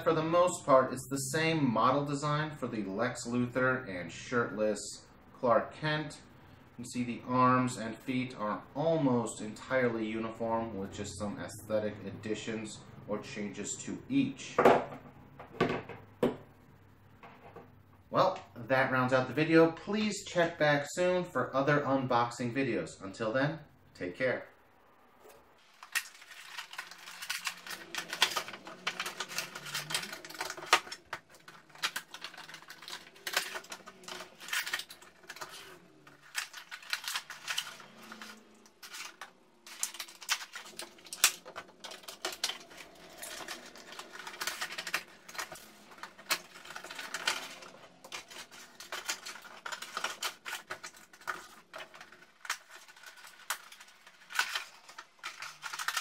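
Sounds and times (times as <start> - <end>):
plastic and cardboard crinkling: 25.6 - 56.0.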